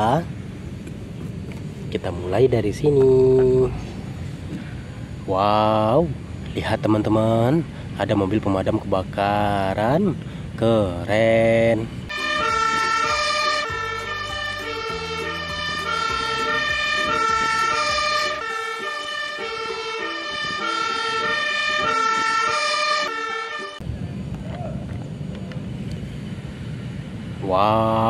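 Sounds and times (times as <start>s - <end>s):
truck engine rumble: 0.0s - 28.0s
fire engine two-tone siren: 12.1s - 23.8s.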